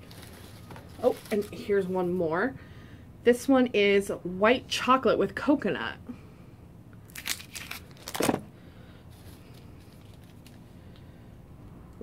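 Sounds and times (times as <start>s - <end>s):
candy wrapper crinkling: 0.0s - 1.7s, 7.0s - 8.5s, 9.1s - 10.7s.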